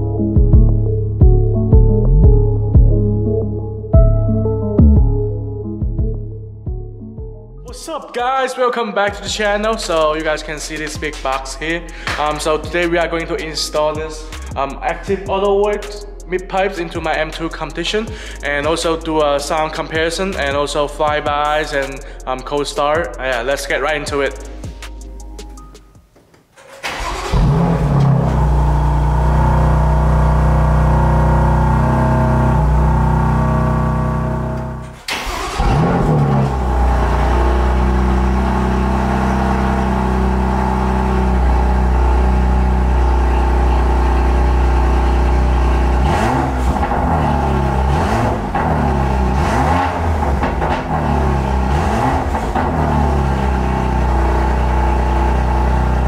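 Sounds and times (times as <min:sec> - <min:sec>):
car engine starting: 0:26.5 - 0:56.0
car engine idling: 0:26.6 - 0:56.0
engine revving: 0:26.8 - 0:56.0.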